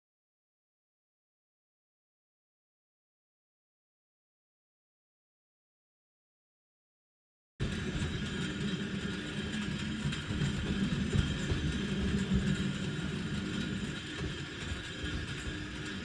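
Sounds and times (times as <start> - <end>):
tram wheels rumbling on rails: 7.6 - 16.0.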